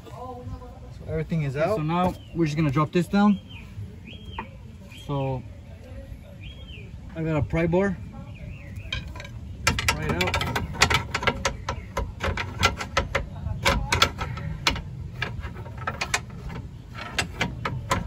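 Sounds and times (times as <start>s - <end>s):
pry bar clanking on metal: 8.7s - 18.0s.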